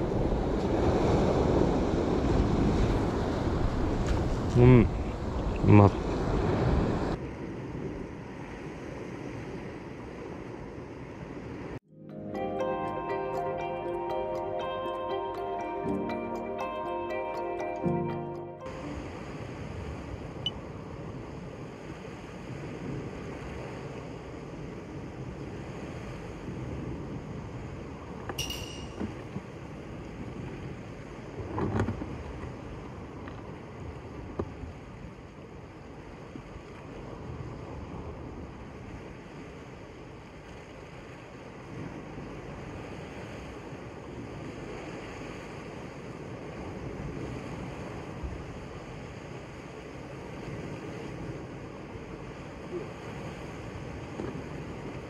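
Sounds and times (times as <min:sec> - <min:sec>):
wind on microphone: 0:00.0 - 0:11.8, 0:18.8 - 0:28.3, 0:36.2 - 0:55.0.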